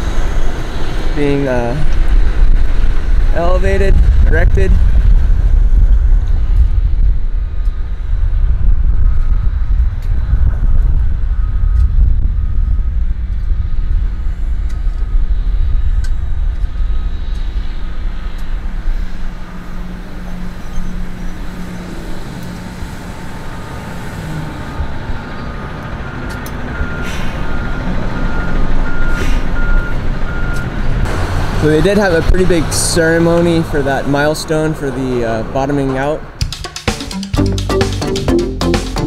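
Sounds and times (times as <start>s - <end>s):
heavy vehicle engines rumbling: 0.0s - 36.5s
traffic: 0.0s - 36.5s
reversing alarm beeping: 22.9s - 30.8s.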